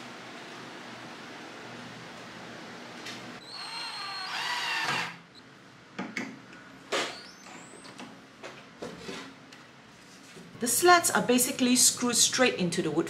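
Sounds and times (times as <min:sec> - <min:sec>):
cordless drill motor whining: 0:03.4 - 0:05.4.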